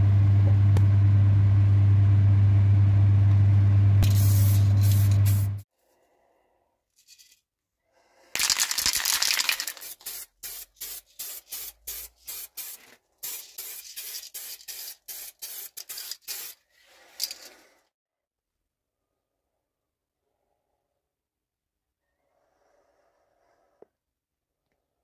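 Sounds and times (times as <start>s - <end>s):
loud low hum: 0.0s - 5.6s
spray paint hissing: 4.0s - 5.6s, 8.4s - 16.6s.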